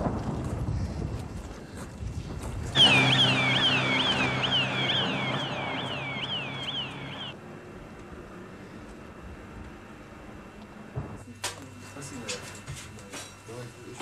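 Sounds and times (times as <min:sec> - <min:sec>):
low outdoor rumble: 0:00.0 - 0:11.2
electronic alarm siren whooping: 0:02.8 - 0:07.4
steady low hum: 0:02.8 - 0:11.2.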